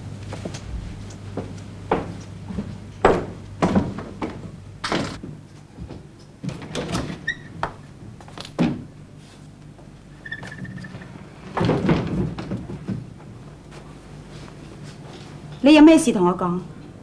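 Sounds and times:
door knocks and thuds: 3.0s - 5.4s.

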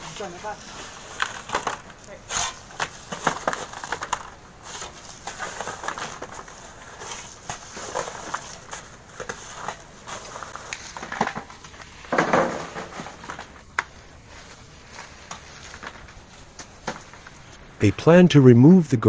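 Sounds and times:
shovels scraping through gravel: 0.0s - 17.6s
rustling: 0.0s - 17.8s
small stones knocking: 0.5s - 13.8s.

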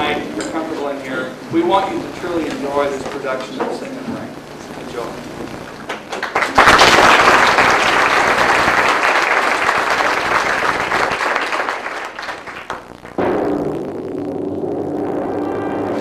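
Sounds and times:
audience applauding: 5.7s - 12.9s.

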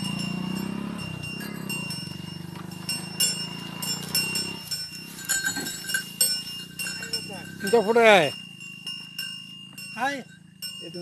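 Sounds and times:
small motorcycle engine running: 0.0s - 11.0s.

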